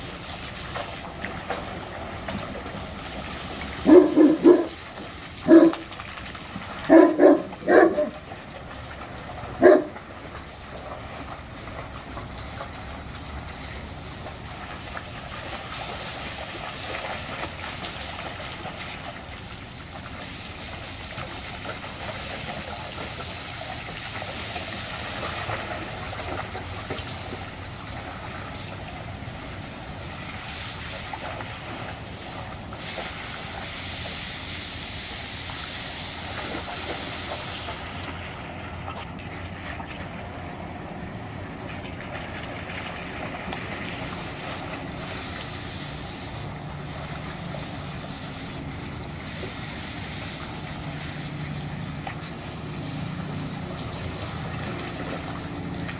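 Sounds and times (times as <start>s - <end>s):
garden hose spraying water: 0.0s - 8.4s, 12.3s - 38.2s, 42.8s - 55.9s
dogs splashing in water: 0.0s - 55.9s
dog barking: 3.8s - 4.8s, 5.5s - 5.8s, 6.9s - 8.2s, 9.6s - 9.9s.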